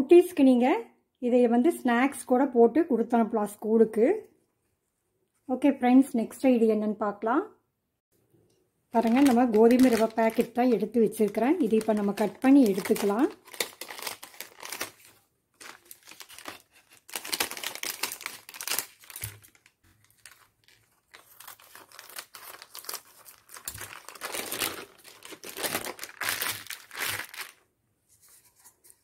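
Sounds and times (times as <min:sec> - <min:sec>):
scissors cutting packet: 0:09.0 - 0:27.6
plastic packet crinkling: 0:09.0 - 0:27.7.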